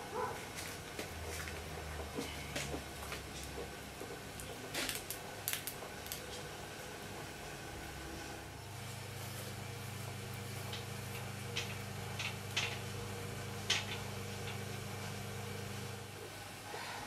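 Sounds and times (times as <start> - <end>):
potter's wheel low hum: 5.8 - 17.0.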